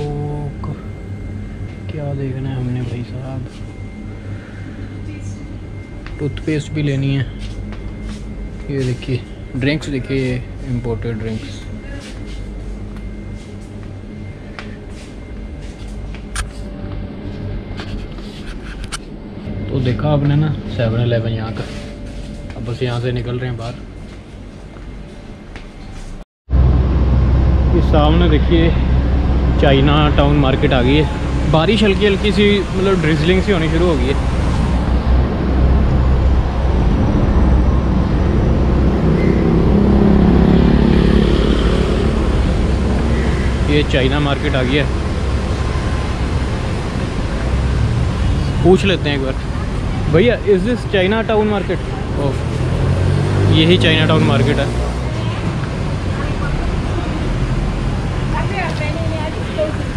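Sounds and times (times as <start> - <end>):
pickup truck engine drone: 0.0 - 25.2, 26.5 - 59.9
refrigerator and air conditioning hum: 0.0 - 59.9
cars passing: 26.5 - 59.9
motorcycle passing: 26.5 - 59.9.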